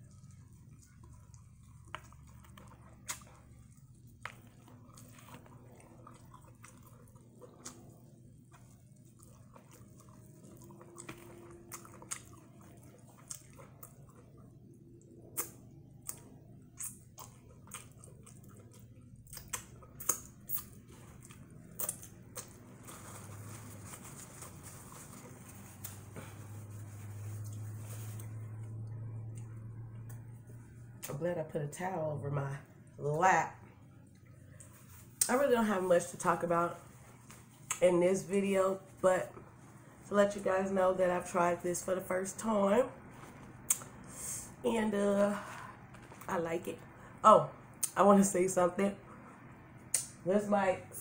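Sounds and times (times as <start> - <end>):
chewing and wet mouth smacks: 0.0 - 23.3, 37.2 - 37.8, 43.2 - 44.1, 49.8 - 50.2
low steady hum: 0.0 - 51.0
soft rustling: 22.5 - 28.8, 34.5 - 37.7.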